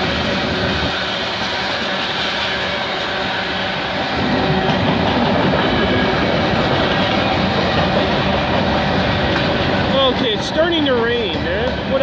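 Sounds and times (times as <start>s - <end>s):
steel wheels on rails: 0.0s - 12.0s.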